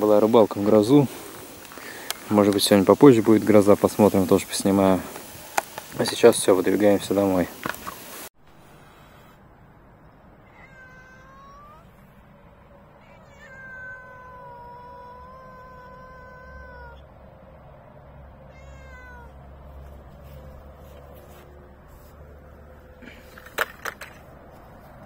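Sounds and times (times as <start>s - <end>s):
cat meowing: 10.4s - 12.1s, 13.0s - 17.1s, 18.5s - 19.5s.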